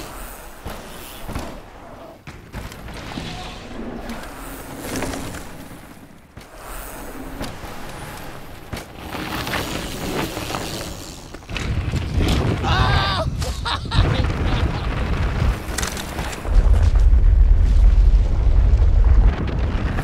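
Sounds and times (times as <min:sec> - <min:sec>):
bike tyres on gravel: 0:00.0 - 0:13.1, 0:14.0 - 0:20.0.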